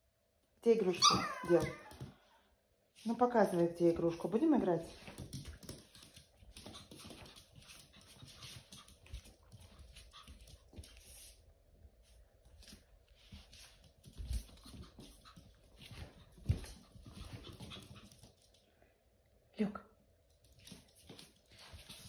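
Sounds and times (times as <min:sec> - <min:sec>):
puppy claws clicking on wooden floor: 0:04.9 - 0:11.0.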